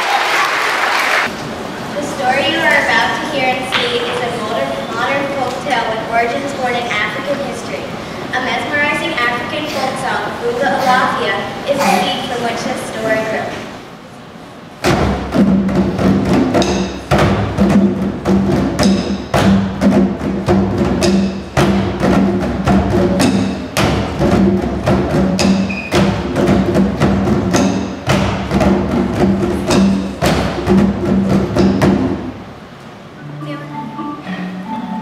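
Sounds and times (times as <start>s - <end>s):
exercise balls beaten with drumsticks: 14.8s - 32.3s
hand drums playing rhythm: 14.8s - 32.6s.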